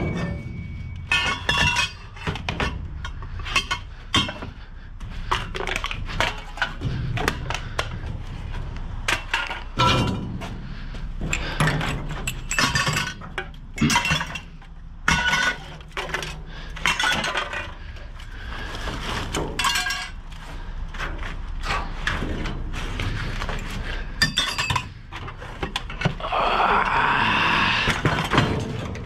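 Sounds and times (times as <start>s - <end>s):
metal and glass clinking: 0.0s - 4.6s, 12.0s - 17.8s, 24.2s - 25.0s
rummaging through scrap: 0.0s - 10.5s, 11.2s - 26.2s.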